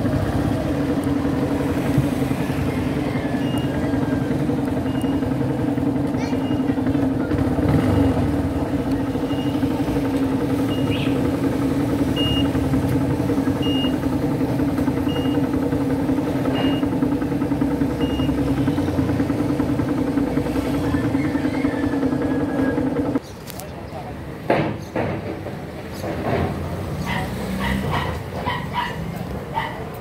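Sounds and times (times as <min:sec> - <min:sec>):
motorcycle engine idling: 0:00.0 - 0:23.3.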